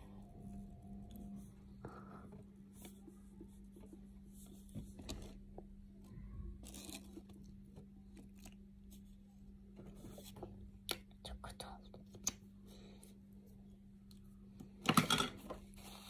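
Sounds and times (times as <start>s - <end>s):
steady hum: 0.0s - 6.6s.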